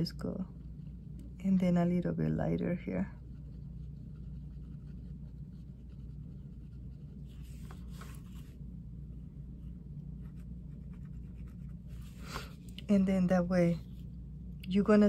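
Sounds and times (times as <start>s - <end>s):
low steady hum: 0.0s - 15.0s
pencil scratching on cloth: 3.1s - 8.6s, 10.2s - 12.6s.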